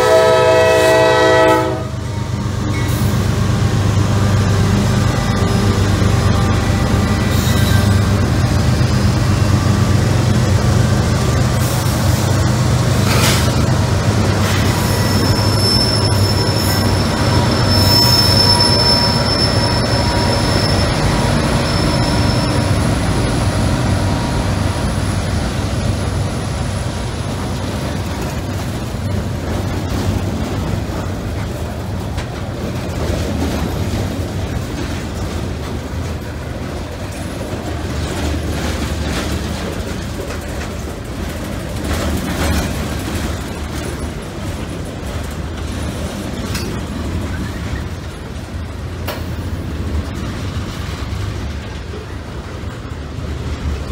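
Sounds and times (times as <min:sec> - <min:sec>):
diesel locomotive engine: 0:00.0 - 0:53.9
freight cars rumbling and rattling: 0:00.0 - 0:53.9
high wheel squeal: 0:05.1 - 0:08.3, 0:14.4 - 0:25.3.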